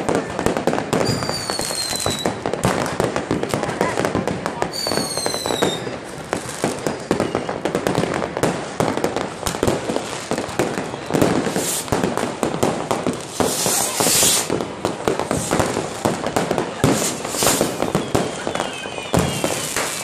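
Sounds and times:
fireworks bangs and crackles: 0.0s - 20.0s
high firework hiss: 8.0s - 20.0s.

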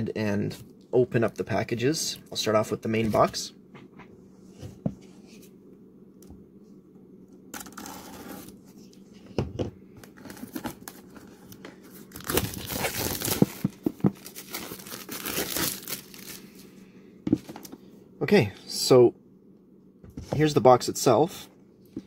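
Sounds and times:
plastic wrap crinkling and tearing: 12.1s - 16.5s.

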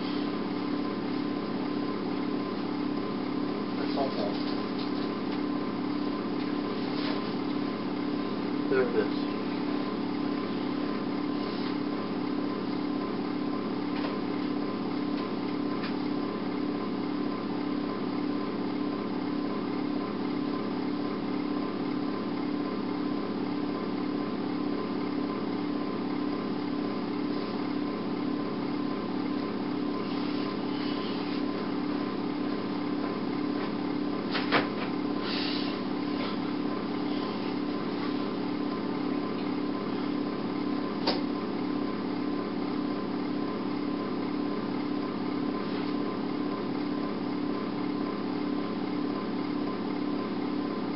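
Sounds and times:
steady machine hum: 0.0s - 50.9s.

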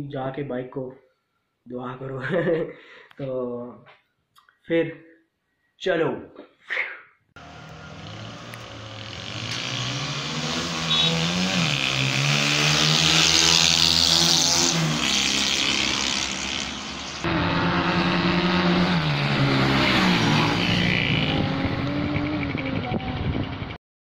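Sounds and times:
motorcycle engine accelerating: 7.4s - 23.8s.

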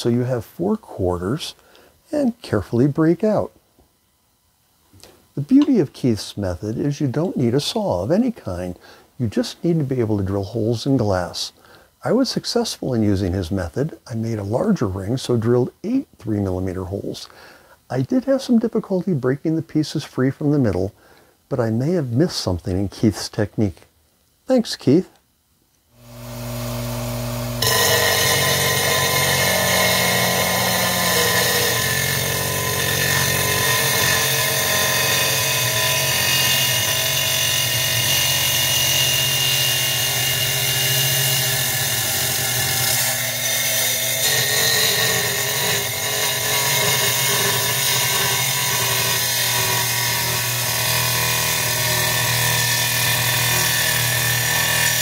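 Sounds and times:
glass saw motor hum: 26.0s - 55.0s
blade grinding glass: 26.1s - 50.7s.

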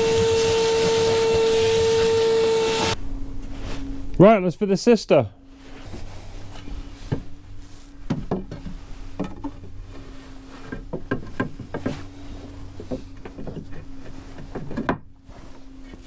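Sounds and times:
steady low hum: 0.0s - 16.0s
wooden knocks and clunks: 8.0s - 9.8s, 10.6s - 12.1s, 12.8s - 15.1s.

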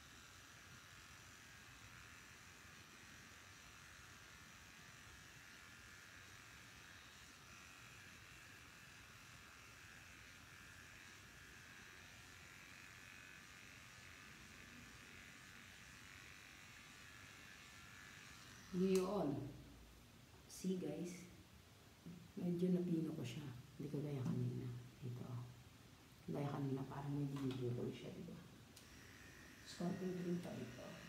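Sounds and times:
electric hair clipper buzzing: 0.0s - 19.6s, 27.0s - 31.0s.

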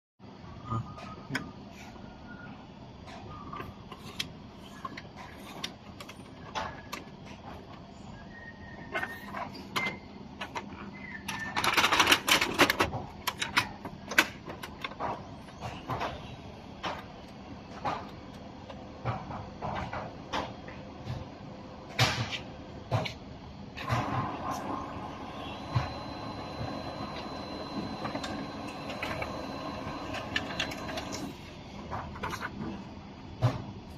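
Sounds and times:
plastic clicks and clatter: 9.7s - 16.2s
laser printer whirring: 22.8s - 33.5s
printer clicks: 23.8s - 31.3s.

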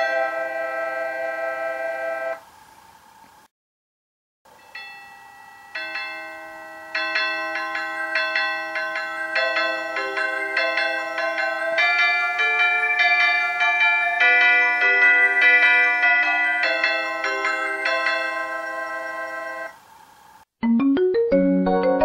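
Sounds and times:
electronic bell-like chime melody: 4.6s - 19.8s.

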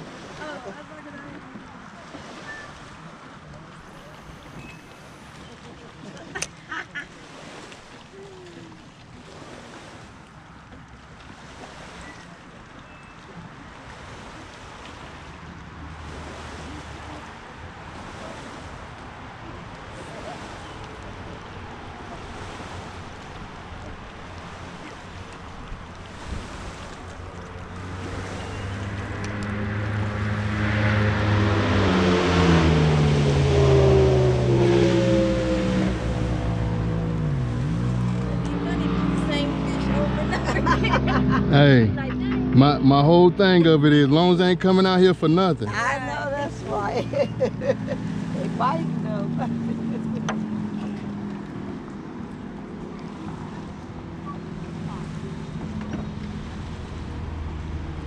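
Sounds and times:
motorboat engine passing: 0.0s - 58.0s.

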